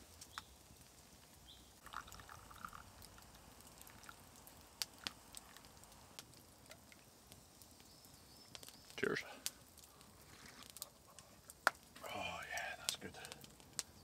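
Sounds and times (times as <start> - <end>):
coffee pouring into cup: 1.8 - 5.7.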